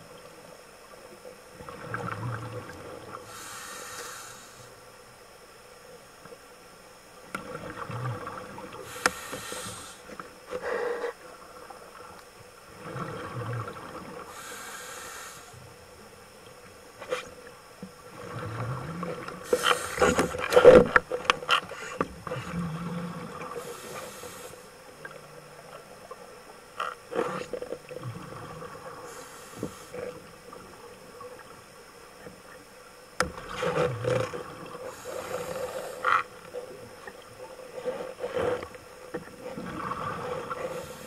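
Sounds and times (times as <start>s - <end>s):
scuba diver breathing: 3.3s - 4.8s, 8.8s - 11.2s, 14.3s - 15.6s, 19.4s - 20.6s, 21.7s - 24.7s, 29.0s - 30.2s, 34.8s - 36.3s, 40.5s - 41.0s
exhaled bubbles hissing: 7.4s - 15.7s, 21.7s - 26.3s, 27.2s - 31.6s, 33.4s - 38.0s, 38.9s - 41.0s.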